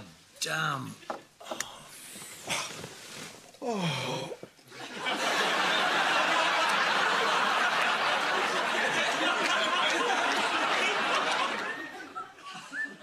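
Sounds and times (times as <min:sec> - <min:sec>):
studio audience laughing: 0:04.7 - 0:13.0.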